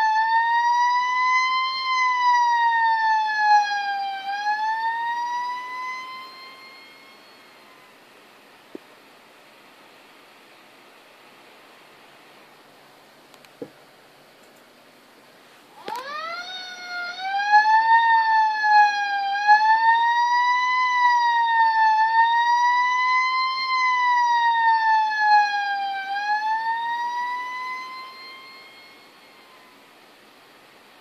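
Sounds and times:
fire truck siren wailing: 0.0 - 8.0, 15.8 - 29.9.

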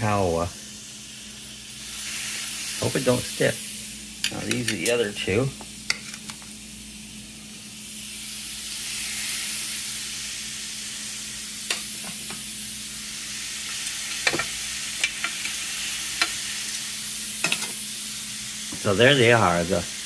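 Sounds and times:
meat sizzling on a grill: 0.0 - 20.0
metal tongs clicking on grill: 4.2 - 5.1, 11.7 - 12.3, 14.2 - 15.6, 16.2 - 16.4, 17.4 - 17.8.

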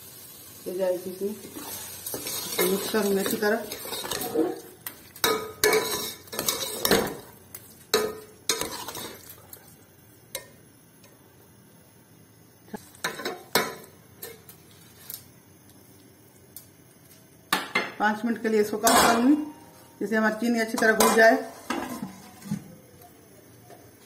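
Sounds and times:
ladle scraping a steel pot: 1.6 - 4.6, 5.6 - 7.1, 8.5 - 9.2.

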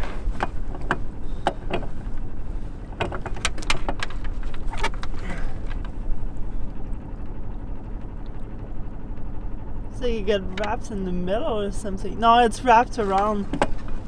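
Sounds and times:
steady low rumble: 0.0 - 14.0.

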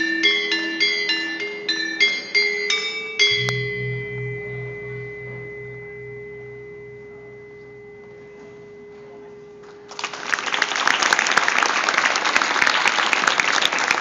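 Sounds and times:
metallophones striking notes: 0.0 - 10.6
large gong humming: 3.2 - 10.5.

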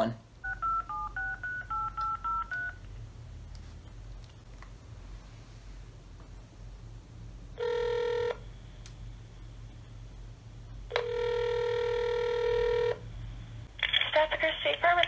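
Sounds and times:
phone ringback tone: 0.4 - 2.8, 7.6 - 8.4, 10.9 - 13.0.

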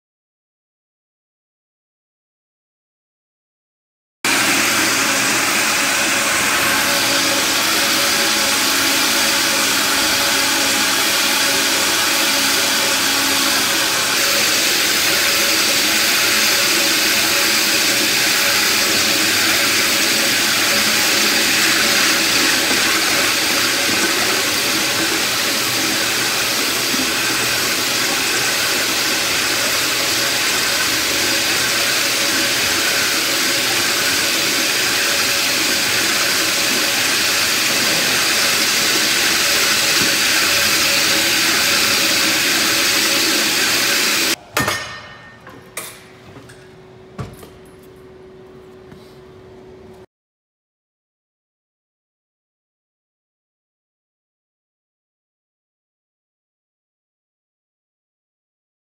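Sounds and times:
industrial vacuum and floor grinder: 4.3 - 44.4.

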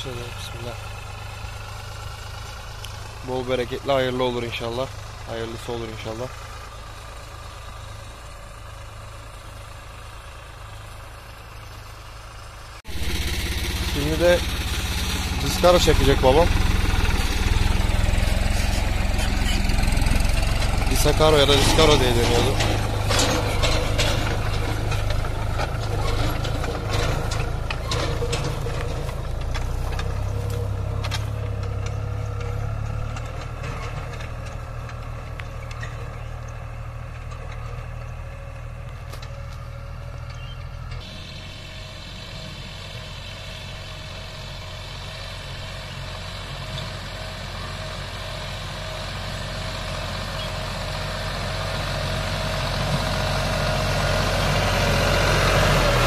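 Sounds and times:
tractor diesel engine running: 0.0 - 56.0
clicks and rattles: 18.0 - 38.2.

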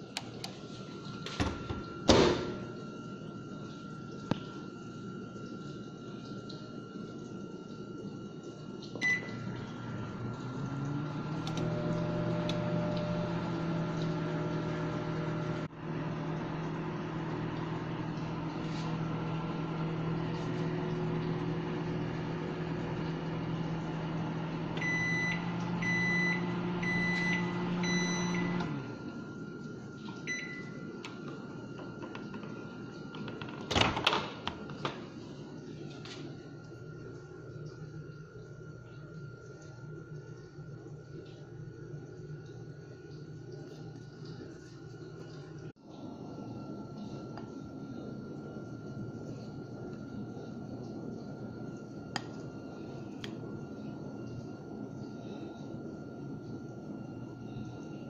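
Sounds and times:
microwave humming: 0.0 - 58.0
microwave keypad beep: 9.0 - 9.6, 24.0 - 28.9, 30.1 - 31.2.

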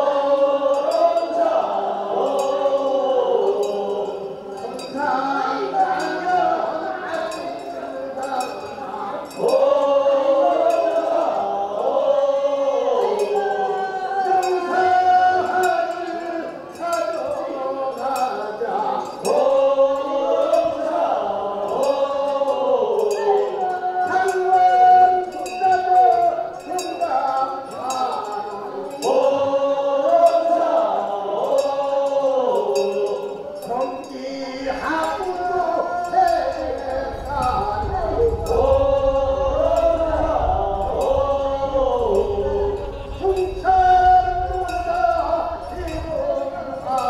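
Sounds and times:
group of voices chanting: 0.0 - 47.0
small metal bell clinking: 23.0 - 29.5, 32.6 - 38.9.

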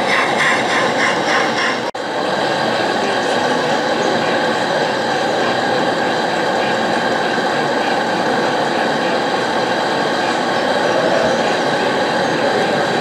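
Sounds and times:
model train running: 0.0 - 13.0.

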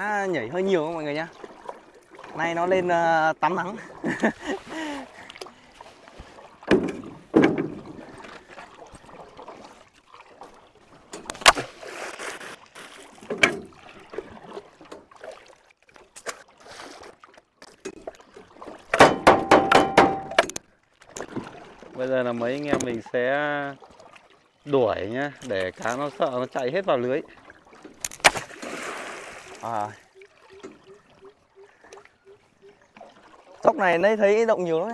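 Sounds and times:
stream water splashing: 0.0 - 34.9
sharp knock: 19.0 - 20.5.

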